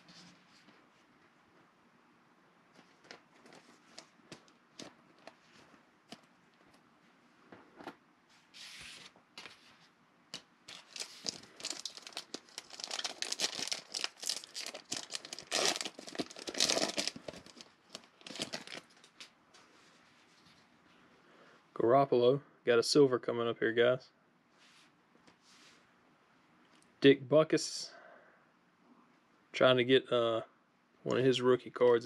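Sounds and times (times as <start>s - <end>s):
foil wrapper crinkling and tearing: 10.7s - 19.3s.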